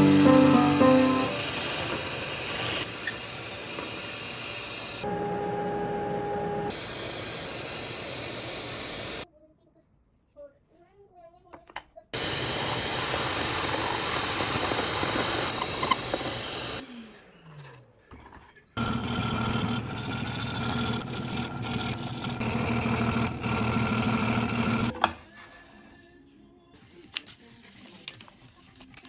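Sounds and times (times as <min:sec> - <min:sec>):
drill press boring wood: 0:12.2 - 0:16.8, 0:18.8 - 0:24.9
scroll saw cutting wood: 0:18.8 - 0:24.9.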